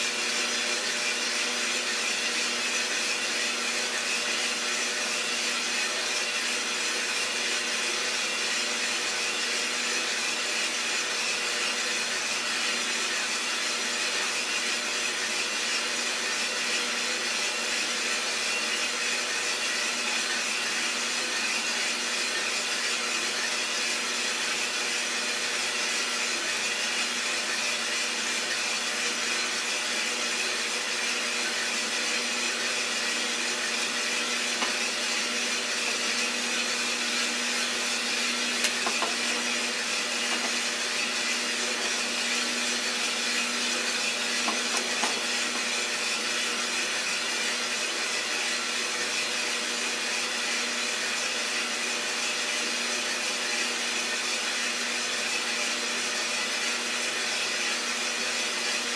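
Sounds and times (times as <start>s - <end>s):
coffee roaster motor whirring: 0.0s - 58.9s.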